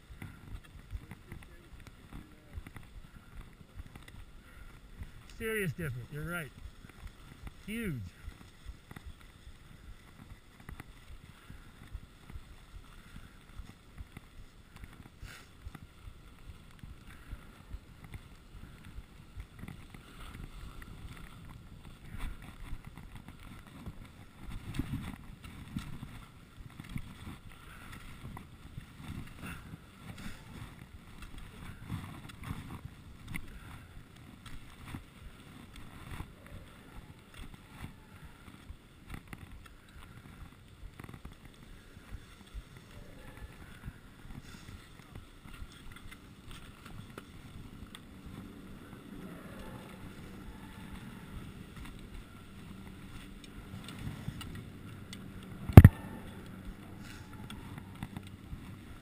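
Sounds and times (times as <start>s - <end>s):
skis sliding over snow: 0.0s - 59.0s.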